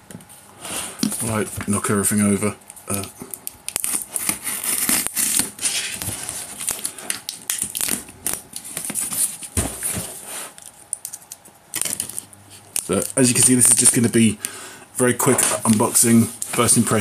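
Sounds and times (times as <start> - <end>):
knife cutting packing tape: 3.7 - 9.3.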